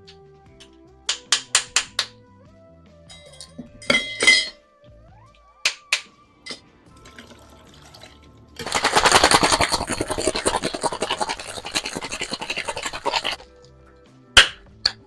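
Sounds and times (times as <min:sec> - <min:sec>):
ice rattling in cocktail shaker: 0:07.0 - 0:13.4.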